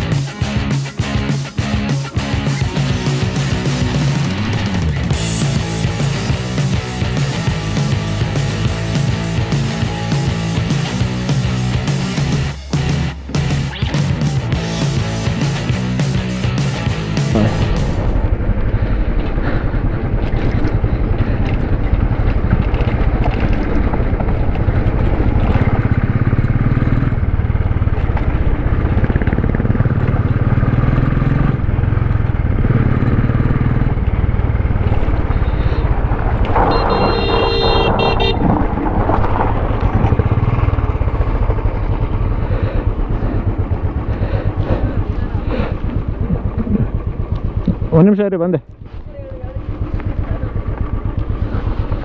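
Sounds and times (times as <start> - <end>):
motorcycle engine running: 0.0 - 52.0
motorcycle horn: 35.2 - 38.5.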